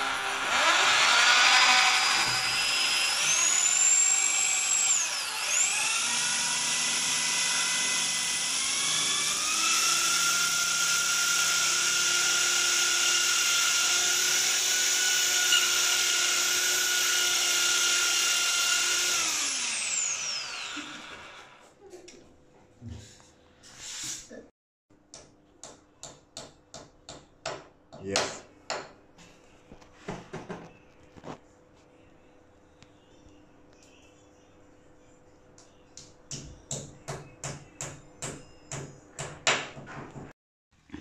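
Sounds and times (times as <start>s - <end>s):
power drill boring through tile: 0.0s - 21.6s.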